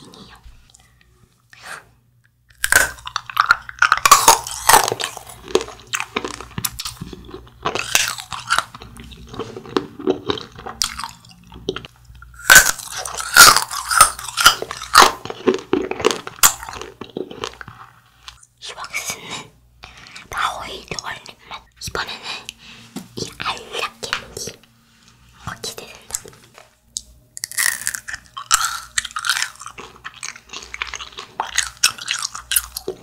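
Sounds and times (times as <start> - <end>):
soft chewing: 0.0 - 33.0
crunching frozen wax candy: 2.5 - 19.0, 27.0 - 33.0.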